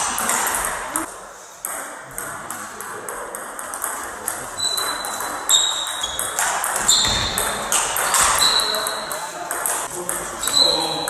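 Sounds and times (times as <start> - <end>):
short high squeaks: 4.5 - 9.1, 10.4 - 11.0.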